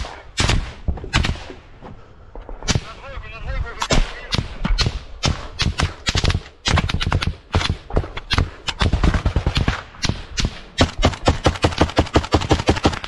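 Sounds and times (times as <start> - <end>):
rapid rifle gunfire: 3.9 - 13.0.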